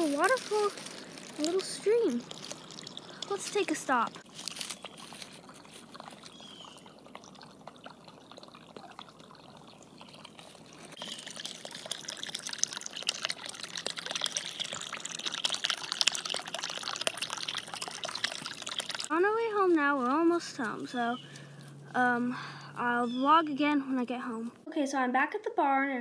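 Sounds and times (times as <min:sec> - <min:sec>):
stream trickling over waterfall: 0:00.0 - 0:20.6.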